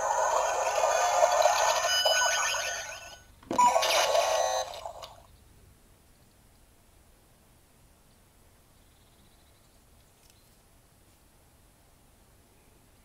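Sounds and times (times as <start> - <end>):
glitchy electronic noise effect: 0.0 - 5.0
toy electronic buzzing effect: 0.0 - 5.2.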